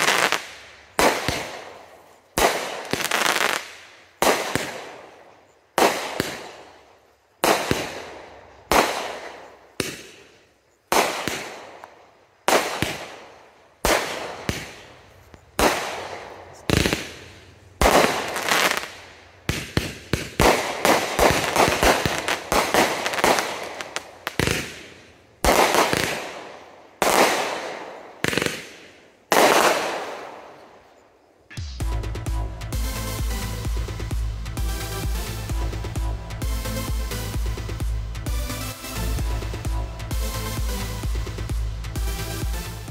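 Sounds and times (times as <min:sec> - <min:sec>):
firework bangs: 0:00.0 - 0:30.9
firework crackling pops: 0:00.0 - 0:30.9.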